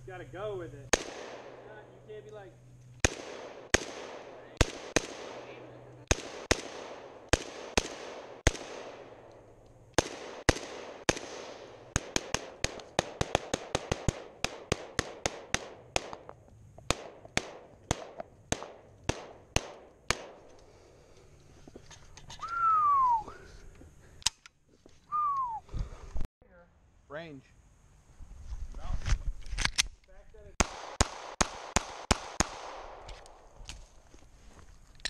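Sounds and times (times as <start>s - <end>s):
rifle shots: 0.9s - 1.8s, 3.0s - 16.3s, 16.9s - 20.5s, 30.6s - 33.3s.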